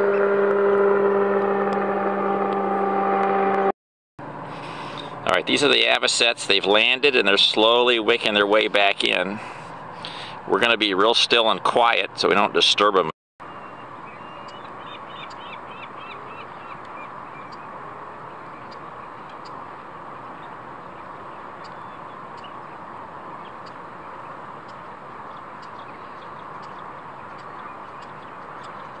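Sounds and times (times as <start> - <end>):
high bird chirps: 13.4 - 17.7, 20.2 - 22.8, 23.4 - 29.0
flock of shorebirds calling: 13.6 - 29.0.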